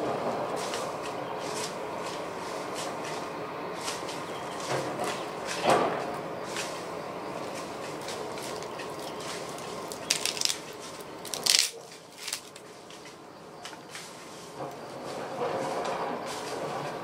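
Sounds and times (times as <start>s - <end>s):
steady background hiss: 0.0s - 17.0s
dry wood crunching and snapping: 7.4s - 12.7s.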